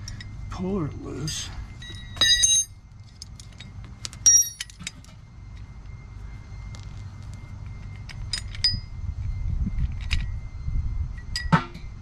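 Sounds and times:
metal tools clinking and ringing: 0.0s - 5.7s, 7.6s - 9.0s, 11.2s - 11.9s
low steady rumble: 0.0s - 12.0s.

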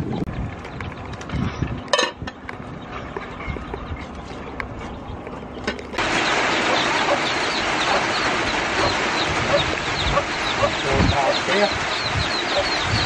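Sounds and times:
chickens chirping: 0.0s - 13.0s
pot boiling and bubbling: 0.0s - 13.0s.

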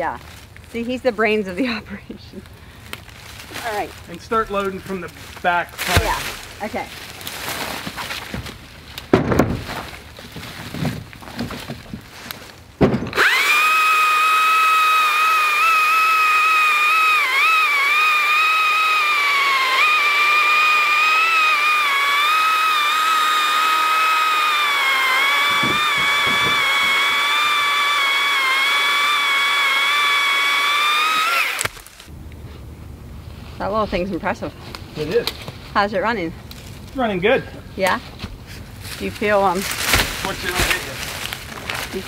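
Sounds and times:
electric chainsaw cutting log: 5.8s - 6.8s, 13.1s - 32.1s, 39.4s - 42.0s
firewood knocking into vehicle bed: 8.3s - 12.1s, 12.8s - 13.2s, 25.4s - 27.0s.

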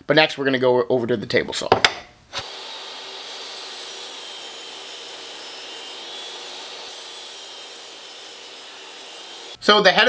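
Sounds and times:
table saw running: 2.4s - 9.6s.

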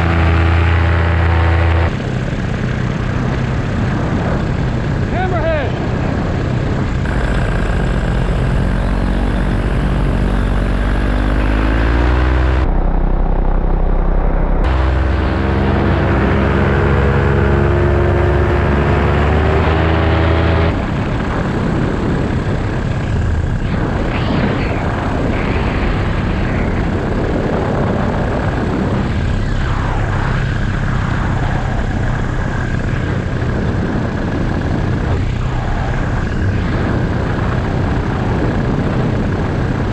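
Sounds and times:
paramotor engine and propeller: 0.0s - 39.9s
rushing air: 0.0s - 39.9s.

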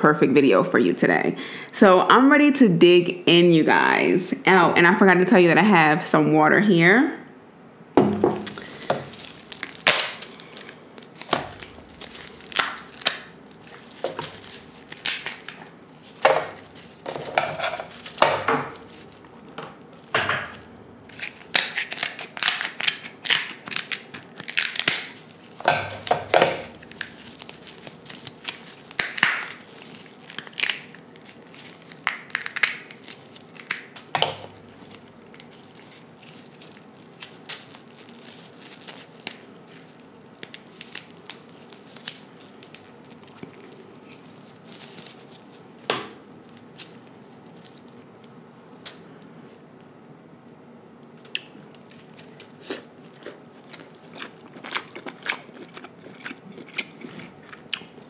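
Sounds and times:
crab shells cracking: 8.4s - 45.7s, 51.0s - 58.0s.

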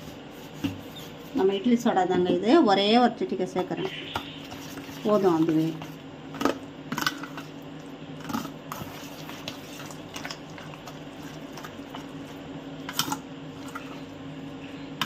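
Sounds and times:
soft squishing of mixture: 3.4s - 15.0s.

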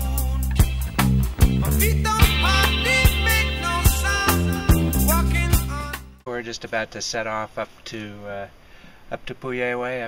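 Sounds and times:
steady drum beat: 0.0s - 6.0s
sustained bass: 0.0s - 6.2s
sliding melody line: 0.6s - 6.1s.

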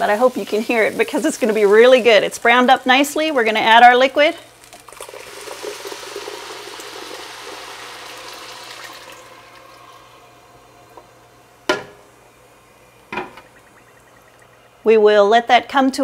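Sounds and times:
liquid pouring into a pot: 4.5s - 14.8s.

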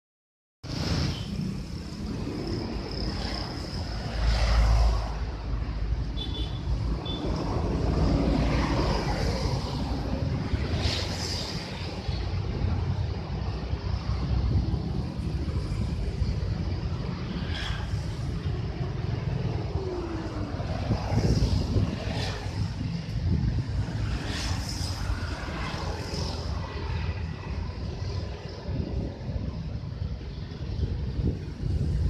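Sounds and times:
wind buffeting microphone: 6.6s - 32.0s.

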